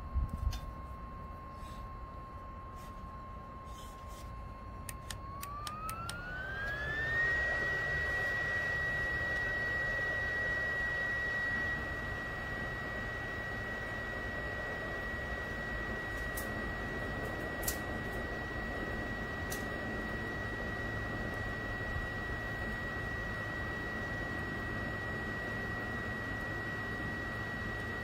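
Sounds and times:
stove fan whining: 0.0 - 28.0.

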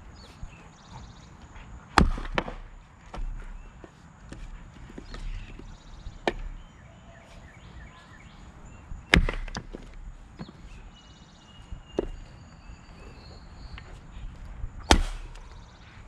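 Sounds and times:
axe splitting wood: 2.0 - 3.6, 4.3 - 6.6, 9.1 - 10.6, 14.9 - 15.5
wood pieces knocking: 9.1 - 10.6.

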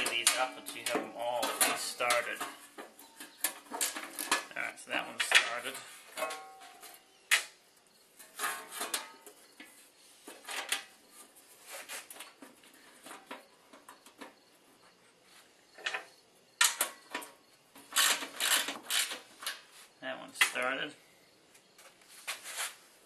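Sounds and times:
metal parts clinking and rattling: 0.0 - 7.5, 15.8 - 19.6.

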